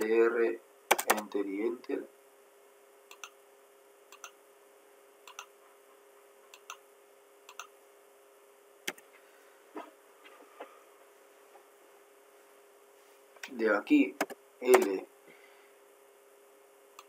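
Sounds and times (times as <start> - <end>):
faint steady hum: 0.0 - 17.0
computer mouse clicks: 3.1 - 3.4, 4.1 - 4.4, 5.3 - 5.5, 6.5 - 6.8, 7.5 - 7.7.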